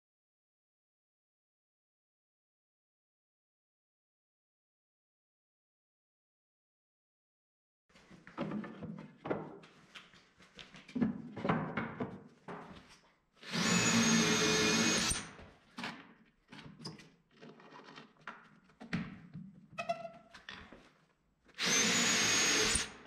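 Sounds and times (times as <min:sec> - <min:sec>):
cordless drill boring into wood: 0:13.4 - 0:15.4, 0:21.6 - 0:23.0.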